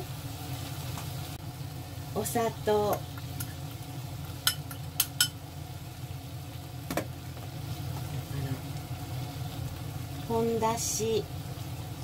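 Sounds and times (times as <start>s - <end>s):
small dish clicking and tapping: 4.4s - 5.4s.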